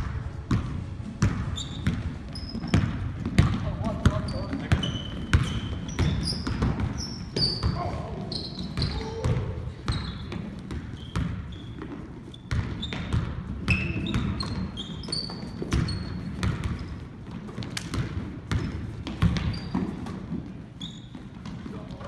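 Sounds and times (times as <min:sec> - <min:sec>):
basketball bouncing on hardwood: 0:00.0 - 0:08.0, 0:08.6 - 0:14.7, 0:15.3 - 0:20.5
sneaker squeaks: 0:00.2 - 0:22.0.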